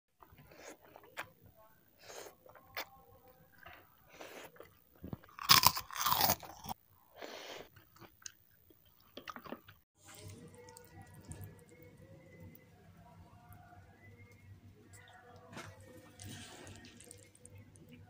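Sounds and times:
crackers crunching: 3.5 - 6.8.

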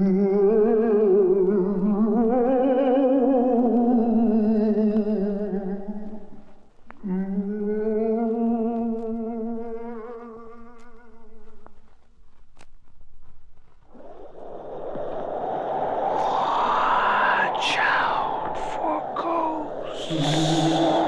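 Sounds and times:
click: 8.2 - 13.4
ghostly wavering moan: 15.9 - 21.0.

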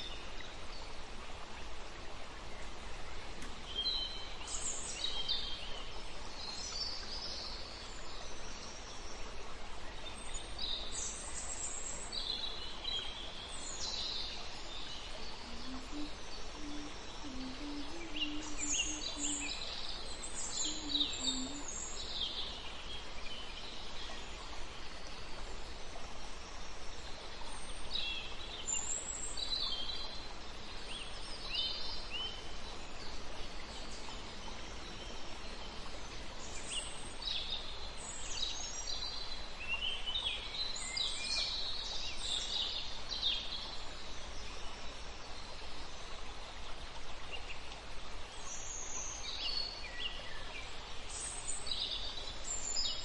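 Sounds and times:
background hiss: 0.0 - 53.0
birds chirping: 15.3 - 19.6, 20.3 - 21.9
faint low-pitched bird call: 15.4 - 19.6, 20.5 - 21.9.

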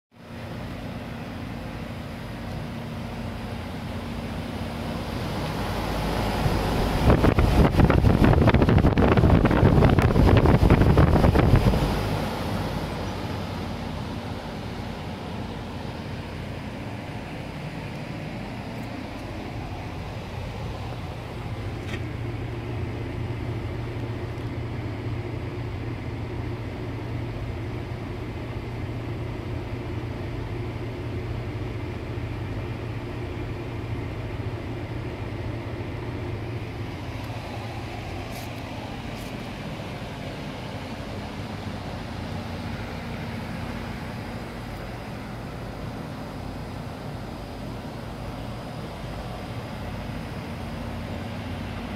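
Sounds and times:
fan air rushing: 0.1 - 51.9
unit running hum: 0.2 - 51.9.

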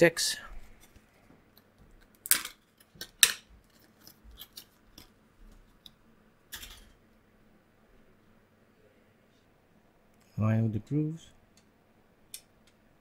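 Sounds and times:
plastic packaging clicks and crackles: 1.6 - 6.0.

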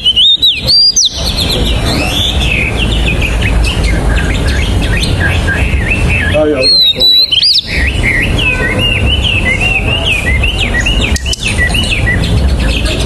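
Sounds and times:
bird singing whistled notes: 0.0 - 13.0.

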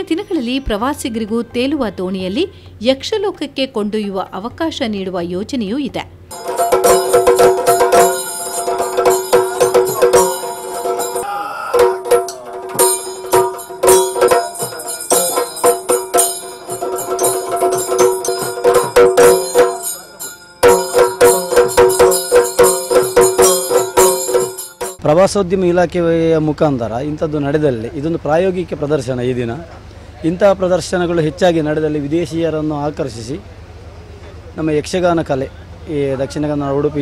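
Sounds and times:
cymbals and bells jingling: 6.3 - 25.0
drums beating fast: 6.3 - 25.0.

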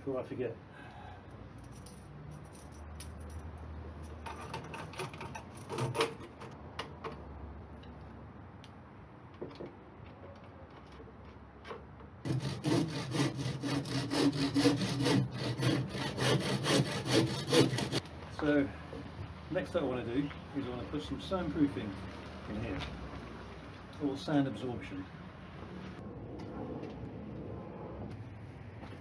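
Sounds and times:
handsaw cutting wood: 12.2 - 18.0.

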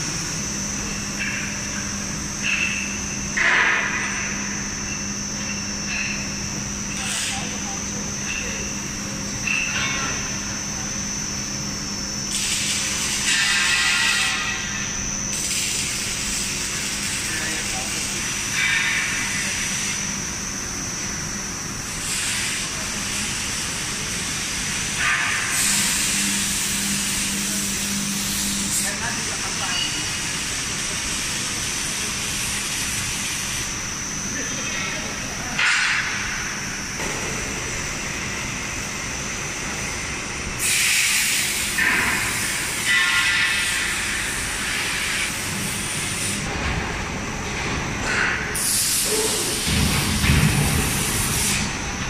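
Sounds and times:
high-pitched whine: 0.0 - 21.4
machine noise with high whine: 0.0 - 52.0
air hiss: 40.6 - 46.5, 48.6 - 51.7.

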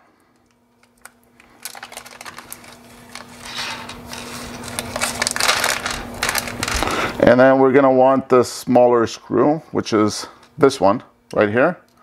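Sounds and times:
plastic bag crinkling: 0.4 - 7.2.

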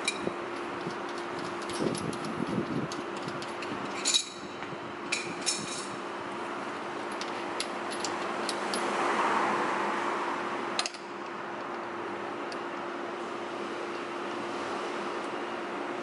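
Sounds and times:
metallic clicks of hose fittings: 0.0 - 4.4, 7.1 - 8.9, 10.8 - 11.8
steady hum: 0.0 - 9.0.

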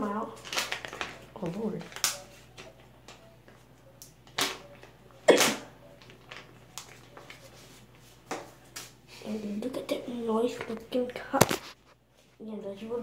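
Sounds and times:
card rustling in hands: 0.4 - 5.0, 6.0 - 9.0, 10.5 - 12.5.

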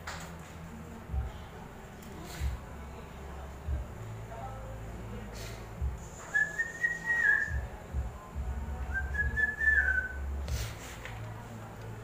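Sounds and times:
person whistling: 6.2 - 7.6, 9.0 - 10.2.

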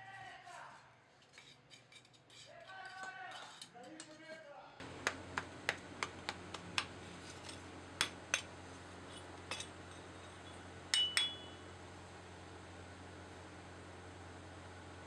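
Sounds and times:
small hammer tapping metal: 5.0 - 6.9, 11.0 - 11.6
ringing hammer strikes: 10.9 - 11.6.

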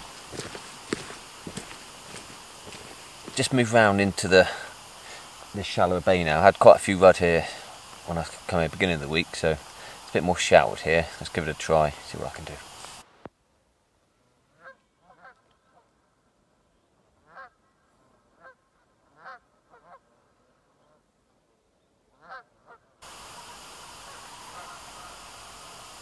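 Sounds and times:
steady rushing noise: 0.0 - 13.2
geese honking: 22.2 - 26.0.

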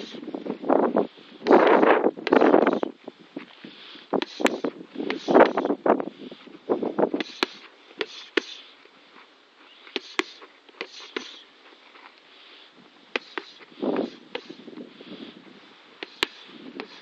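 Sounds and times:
boxing gloves smacking mitts: 9.9 - 11.4, 13.1 - 14.6, 16.0 - 17.0.

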